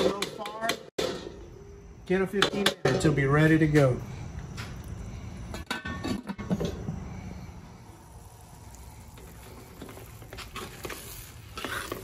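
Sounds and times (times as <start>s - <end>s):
spoon scraping in pot: 9.8s - 12.0s.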